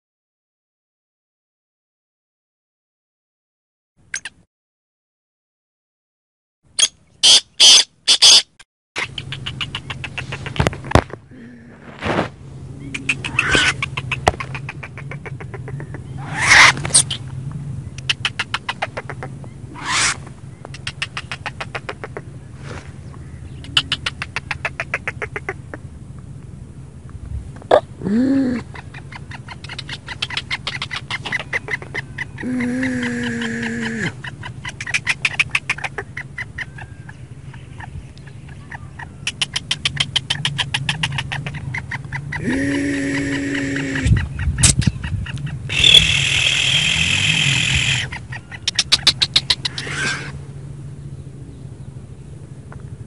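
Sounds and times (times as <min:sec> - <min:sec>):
bird harsh rattling calls: 0:06.8 - 0:10.8, 0:12.8 - 0:17.3, 0:18.0 - 0:22.2, 0:23.3 - 0:25.6, 0:28.7 - 0:50.4
low steady hum: 0:09.0 - 0:53.0.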